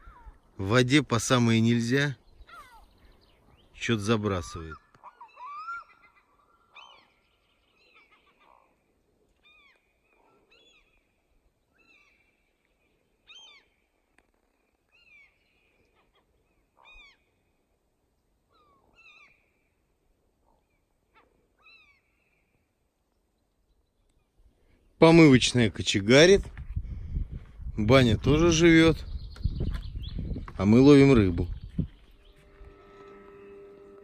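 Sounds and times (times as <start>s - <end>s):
faint bird calls: 0.0s - 0.8s, 2.2s - 25.0s, 31.4s - 34.0s.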